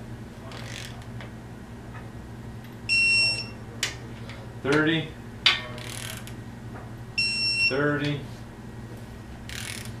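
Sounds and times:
torque wrench beep: 0:02.9 - 0:03.6, 0:07.2 - 0:07.8.

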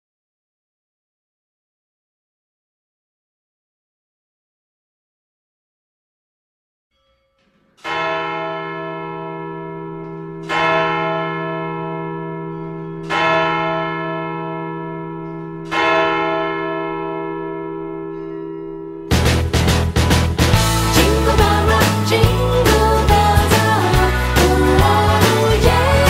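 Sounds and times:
deep church bell ringing: 0:07.0 - 0:19.3.

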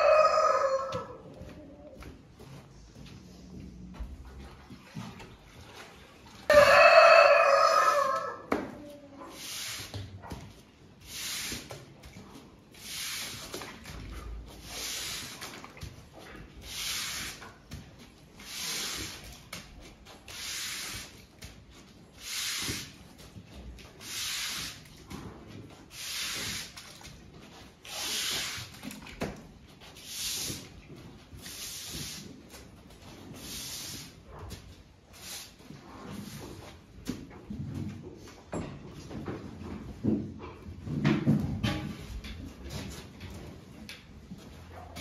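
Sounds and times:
stiff broom sweeping concrete: 0:09.1 - 0:10.3, 0:11.0 - 0:27.0, 0:27.8 - 0:28.8, 0:29.9 - 0:34.4, 0:35.0 - 0:36.9.

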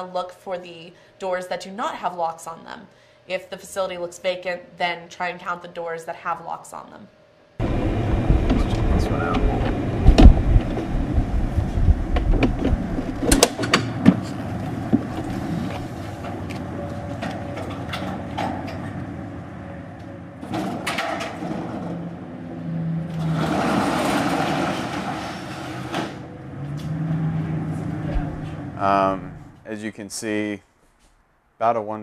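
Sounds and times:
metal roll-up door rattling: 0:12.0 - 0:28.8.

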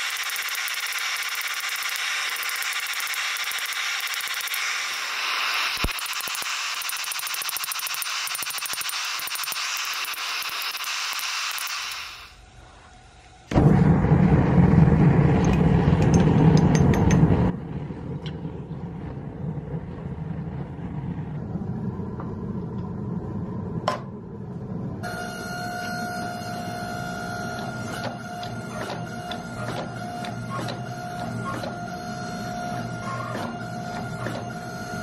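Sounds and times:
steady whine: 0:00.0 - 0:35.0
forging press running: 0:11.6 - 0:35.0
gas forge roaring: 0:11.8 - 0:35.0.

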